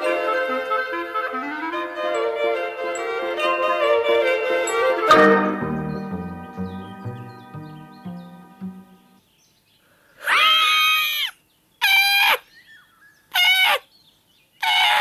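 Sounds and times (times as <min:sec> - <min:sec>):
piano-like musical phrase: 0:03.2 - 0:09.2.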